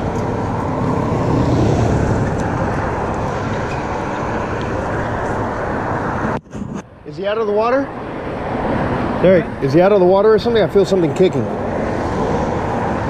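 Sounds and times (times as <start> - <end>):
road traffic rushing by: 0.0 - 13.0.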